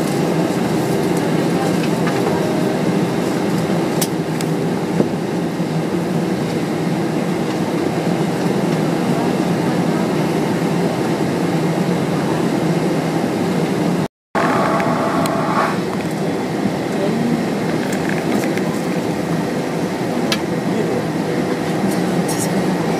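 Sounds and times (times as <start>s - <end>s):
low mechanical engine drone: 0.0s - 22.9s
brief high whine: 14.4s - 15.8s.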